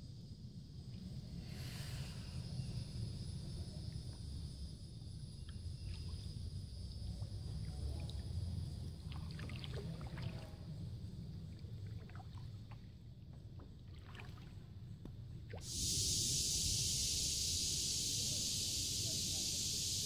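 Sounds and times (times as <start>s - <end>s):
steady hiss: 0.1s - 5.4s, 15.6s - 20.0s.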